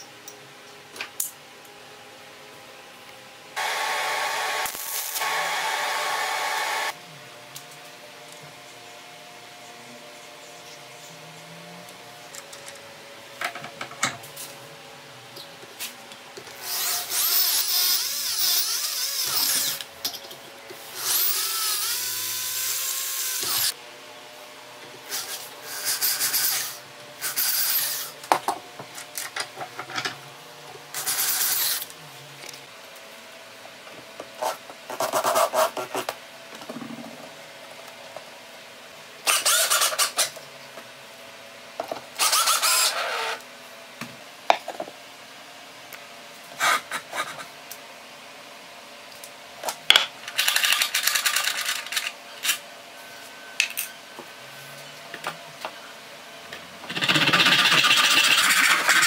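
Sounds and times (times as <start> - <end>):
electric drill running: 3.6 - 7.0, 16.6 - 19.8, 20.8 - 23.8, 42.2 - 43.4.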